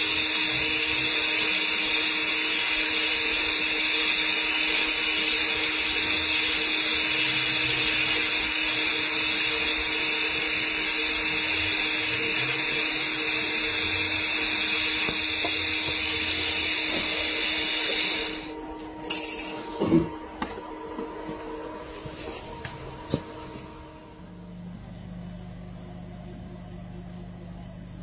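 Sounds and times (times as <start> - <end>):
welding arc hissing: 0.0 - 19.8.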